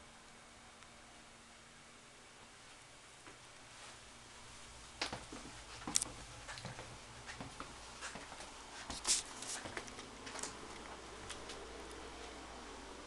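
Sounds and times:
low room hum: 0.0 - 13.0
footstep taps and clicks: 5.0 - 9.0.

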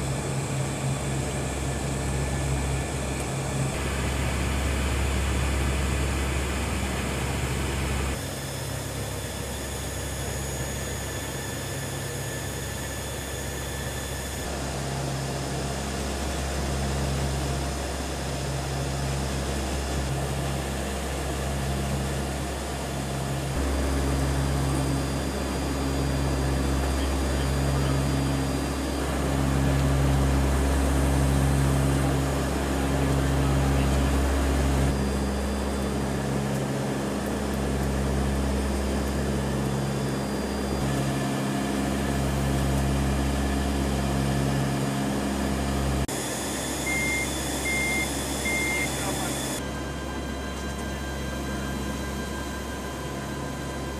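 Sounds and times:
turboprop cabin drone: 0.0 - 53.9
short high beeps: 46.7 - 49.6.

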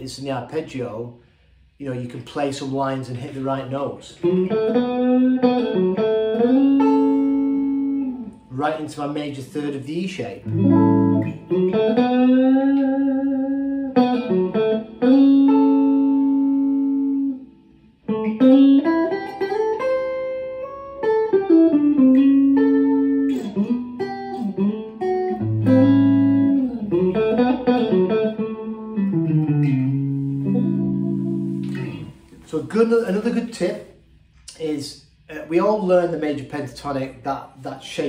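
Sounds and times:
electric guitar blues lead: 3.4 - 32.4.

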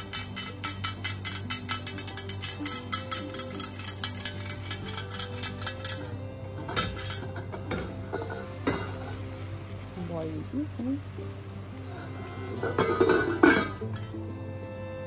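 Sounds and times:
background music with ticking beat: 0.0 - 8.8
metal lid clinking on pan: 0.0 - 9.2, 12.6 - 14.2.

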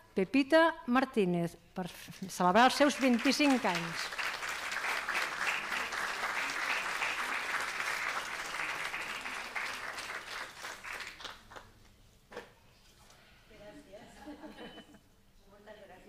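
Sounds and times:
audience applauding: 2.6 - 11.7.

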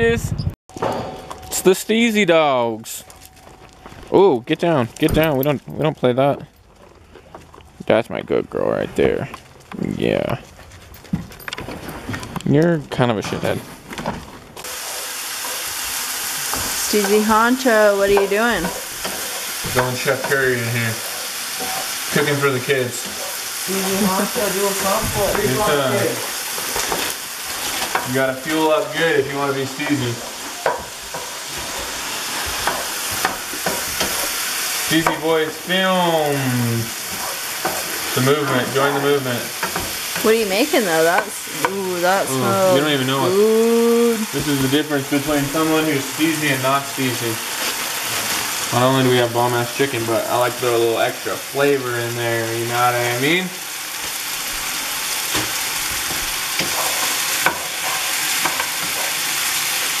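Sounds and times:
chicken sizzling in a frying pan: 14.6 - 60.0.

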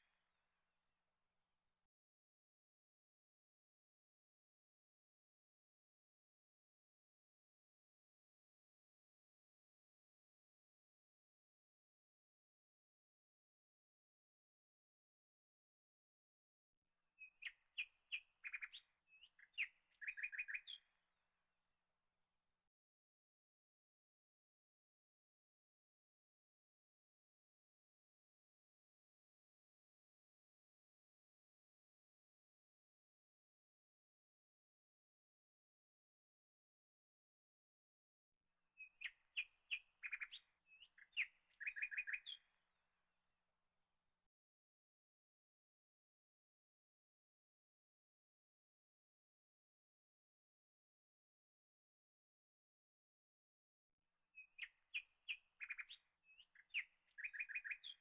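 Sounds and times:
small bird chirping: 17.2 - 20.9, 38.8 - 42.6, 54.4 - 58.0.

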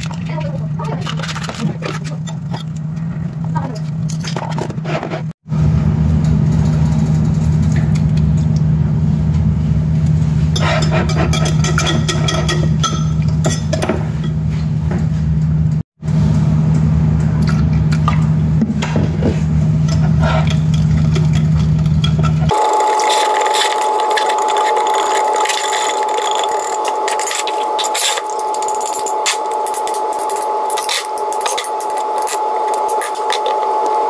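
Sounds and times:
low machine hum: 5.5 - 34.0
whisk clinking against glass jug: 10.6 - 13.9.

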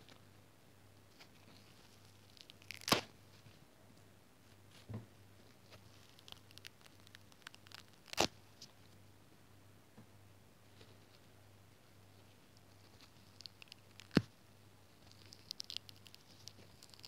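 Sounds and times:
foam sponge tearing: 2.3 - 3.1, 6.1 - 8.3.

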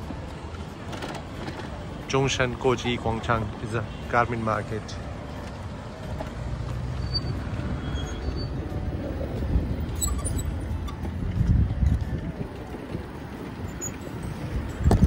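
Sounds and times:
street traffic hum: 0.0 - 15.0
wind buffeting microphone: 7.3 - 15.0.

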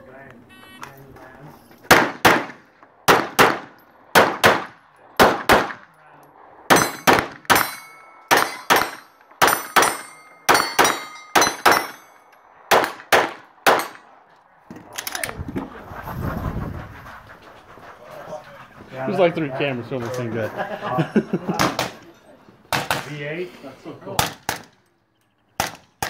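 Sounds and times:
pistol shots: 1.9 - 5.8, 6.7 - 12.0, 12.7 - 14.0, 22.7 - 23.1, 24.2 - 24.8, 25.6 - 26.0
steel plates ringing: 6.7 - 12.5.

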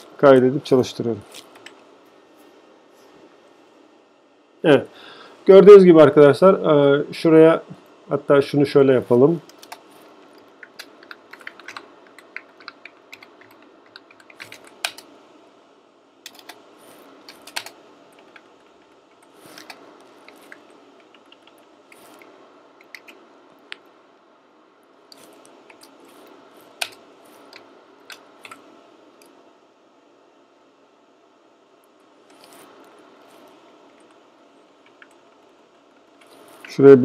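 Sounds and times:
faint background hum: 0.0 - 37.0
computer keyboard typing: 9.4 - 15.1, 16.2 - 16.6, 17.2 - 23.2, 25.2 - 28.6.

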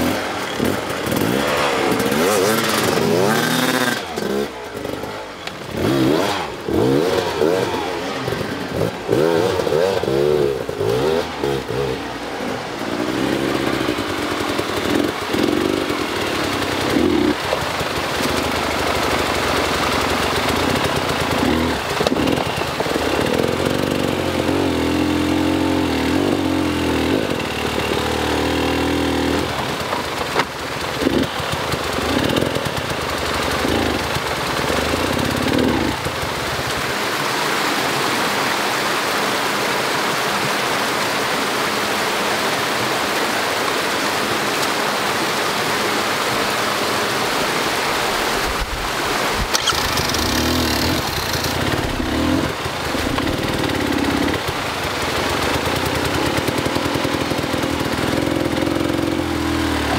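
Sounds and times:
dirt bike engine revving: 0.0 - 37.1, 45.9 - 59.9
creek water rushing: 0.0 - 59.9.

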